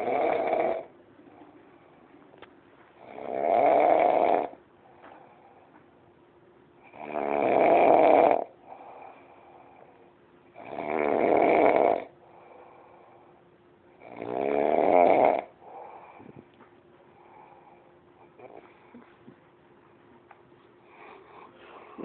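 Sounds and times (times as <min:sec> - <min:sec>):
person snoring loudly: 0:00.0 - 0:00.9, 0:03.0 - 0:04.6, 0:06.8 - 0:08.6, 0:10.6 - 0:12.1, 0:14.0 - 0:15.6.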